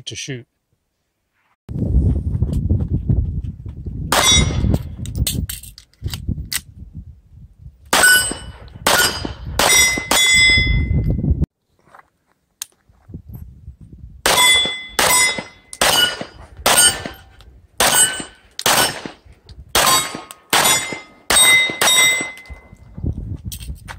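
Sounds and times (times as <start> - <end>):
steel targets ringing: 4.2 - 4.6, 8.0 - 11.0, 14.3 - 19.0, 19.8 - 22.6
pistol shots: 7.9 - 10.4, 14.2 - 19.2, 19.8 - 22.5.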